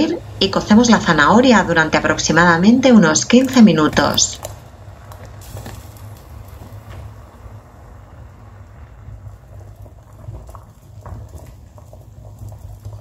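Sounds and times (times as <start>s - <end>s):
water boiling in a pot: 0.0s - 13.0s.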